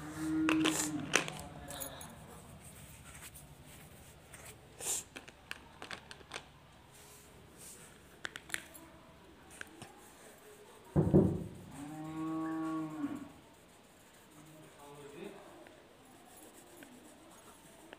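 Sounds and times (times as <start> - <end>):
crayon scratching on paper: 13.3 - 17.9.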